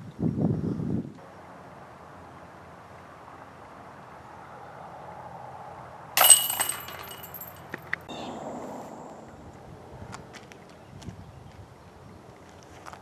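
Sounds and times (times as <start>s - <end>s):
faint outdoor background: 0.0s - 13.0s
disc hitting metal chains: 6.2s - 7.6s.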